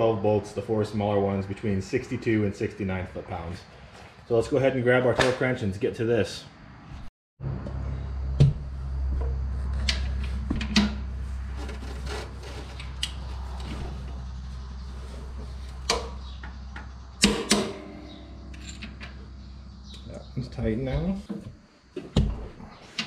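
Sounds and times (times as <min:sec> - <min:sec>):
steady low hum: 0:07.4 - 0:22.9.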